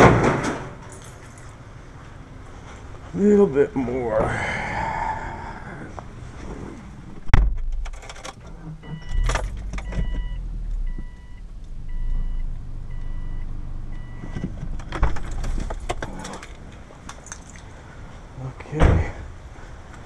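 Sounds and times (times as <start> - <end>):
sharp thump: 7.3 - 7.9
car warning chime beeping: 8.8 - 14.6.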